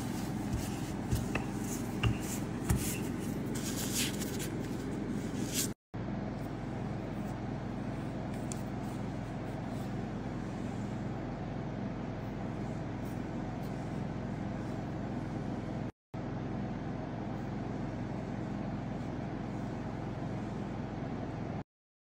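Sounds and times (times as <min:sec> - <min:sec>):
low mechanical hum: 0:00.0 - 0:21.6.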